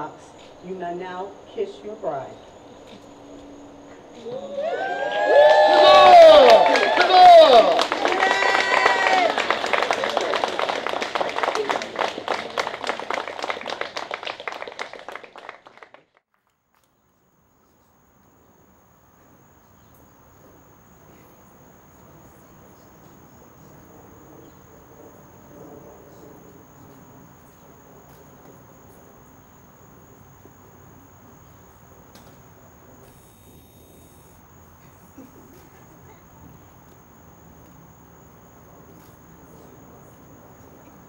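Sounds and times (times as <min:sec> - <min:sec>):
insect drone: 0:00.0 - 0:15.1, 0:16.7 - 0:41.0
guests applauding: 0:04.3 - 0:16.2.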